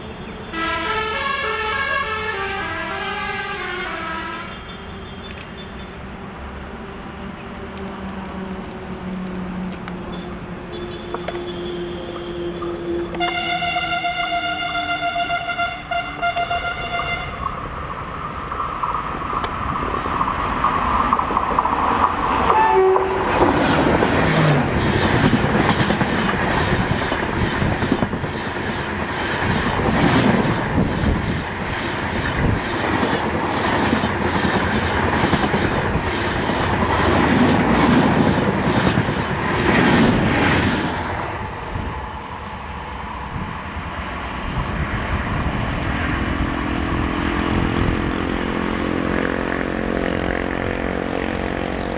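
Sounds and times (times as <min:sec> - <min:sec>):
locomotive horn blast: 0:00.5 - 0:05.9, 0:10.0 - 0:17.5, 0:22.5 - 0:23.5.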